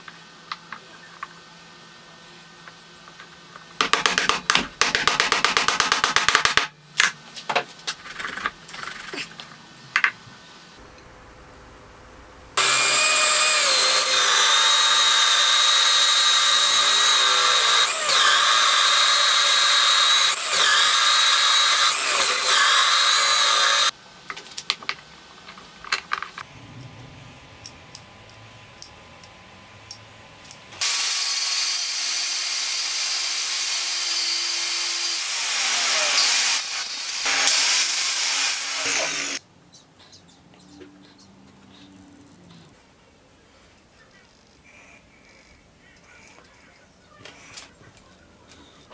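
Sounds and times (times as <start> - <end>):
angle grinder running: 12.5 - 23.9, 30.8 - 39.4
electric drill boring into wood: 12.6 - 23.9, 30.8 - 39.4.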